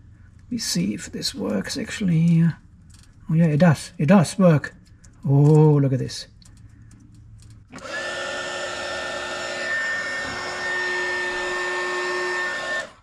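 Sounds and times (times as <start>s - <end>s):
heat gun fan whining: 6.4s - 13.0s.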